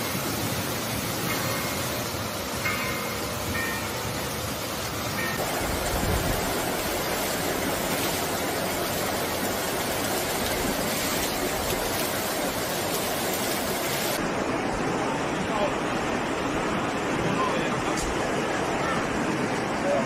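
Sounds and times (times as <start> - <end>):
floodwater rushing down a street: 0.0 - 20.0.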